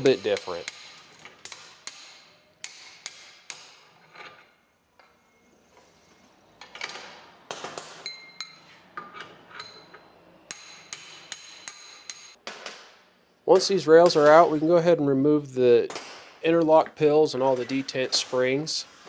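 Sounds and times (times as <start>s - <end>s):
steel-on-steel taps and clinks: 8.0s - 12.4s.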